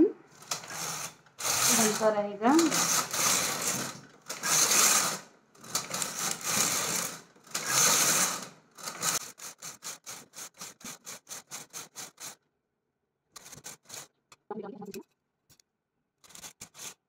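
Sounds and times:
knitting machine carriage rattling: 0.4s - 12.4s, 13.4s - 14.1s, 16.2s - 17.0s.

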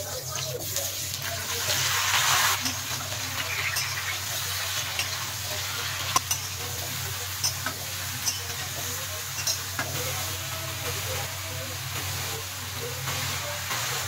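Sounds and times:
food sizzling in oil: 0.0s - 14.0s
spatula striking pan: 2.6s - 5.2s, 5.9s - 6.8s, 7.4s - 10.0s.

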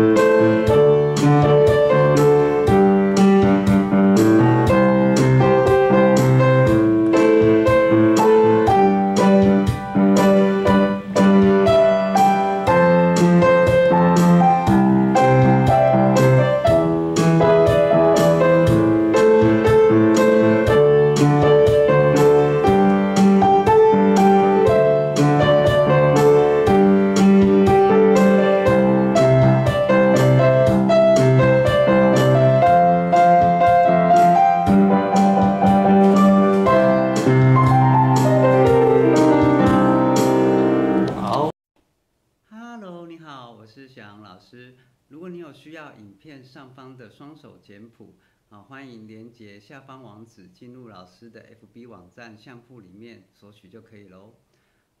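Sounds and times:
piano playing a pop ballad: 0.0s - 41.6s.

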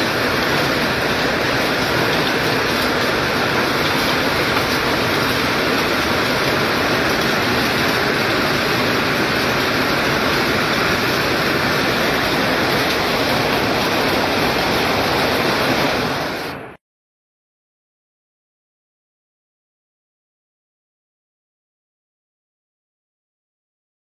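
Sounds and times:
hailstones pelting paving and cars: 0.0s - 16.5s.

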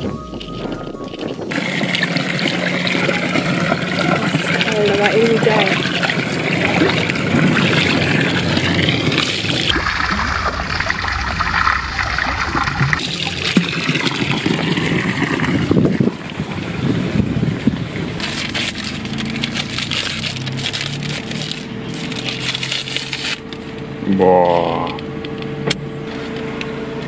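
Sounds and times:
fountain water splashing into trough: 1.0s - 21.6s
plastic wrappers crinkling: 18.2s - 23.8s.

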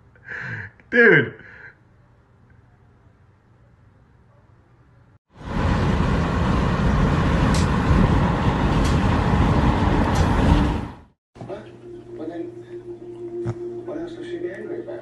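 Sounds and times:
wind and road noise: 5.3s - 11.1s.

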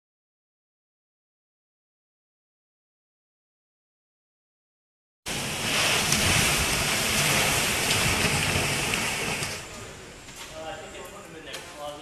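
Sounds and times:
hurricane wind and rain: 5.3s - 11.4s.

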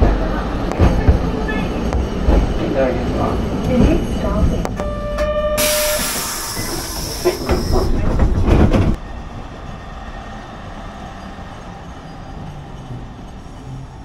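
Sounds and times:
street noise with low rumble: 0.0s - 5.5s
air hiss: 5.6s - 7.8s.

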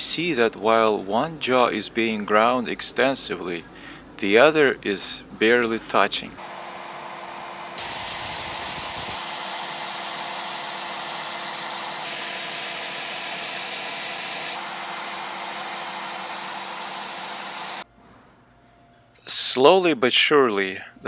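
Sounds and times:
router motor whine: 6.4s - 17.8s.

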